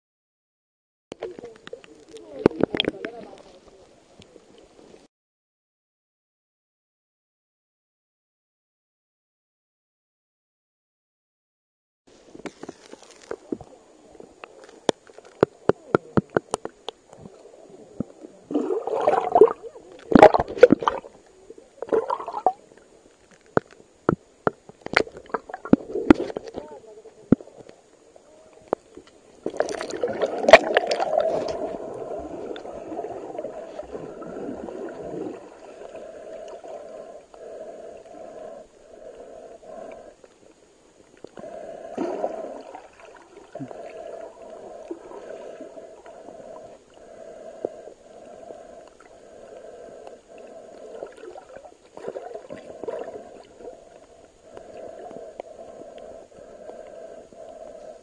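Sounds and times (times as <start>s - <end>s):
underwater splashing gurgle: 15.4s - 22.8s, 23.5s - 26.6s, 29.4s - 39.0s, 41.1s - 46.8s, 49.7s - 56.8s.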